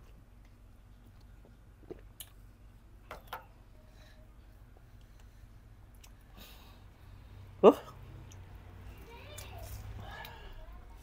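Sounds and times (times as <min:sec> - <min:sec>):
low steady hum: 0:00.0 - 0:11.0
soft clicks and mouth sounds: 0:00.4 - 0:02.4, 0:05.9 - 0:06.2, 0:08.2 - 0:08.5.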